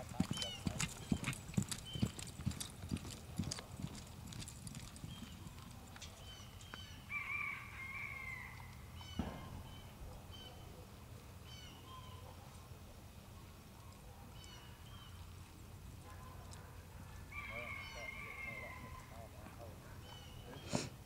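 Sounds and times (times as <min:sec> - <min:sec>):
horse hoofbeats on soft dirt: 0:00.0 - 0:06.8
thump: 0:09.2 - 0:09.9.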